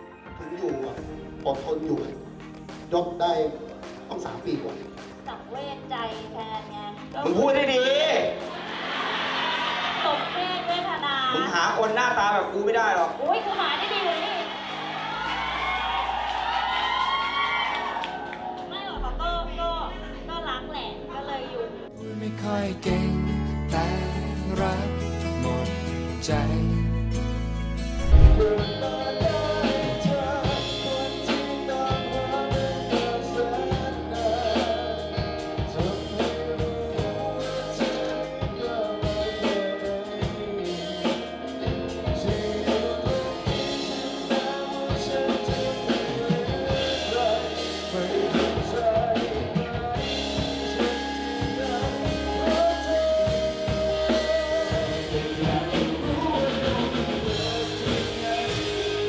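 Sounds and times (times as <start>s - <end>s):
drum kit: 0.9s - 9.7s, 27.9s - 59.0s
electric guitar: 21.9s - 59.0s
man singing: 22.0s - 27.2s, 28.0s - 59.0s
bass guitar: 22.0s - 59.0s.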